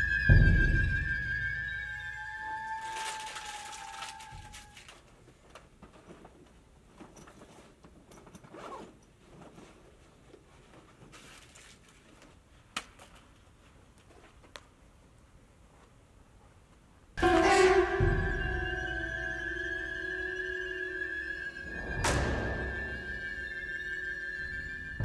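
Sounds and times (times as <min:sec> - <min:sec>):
soft rustling: 0:03.0 - 0:12.4
zipper being pulled: 0:08.4 - 0:09.0.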